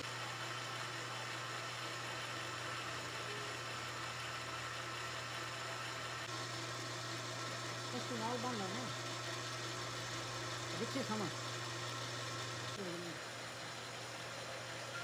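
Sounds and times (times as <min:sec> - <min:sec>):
metal lathe running: 0:00.0 - 0:14.9.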